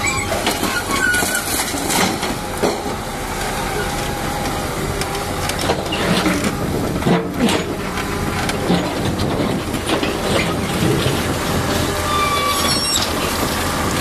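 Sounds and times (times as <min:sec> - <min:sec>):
creaking squeals: 0:00.0 - 0:02.2, 0:10.3 - 0:13.5
excavator diesel engine running: 0:00.0 - 0:14.0.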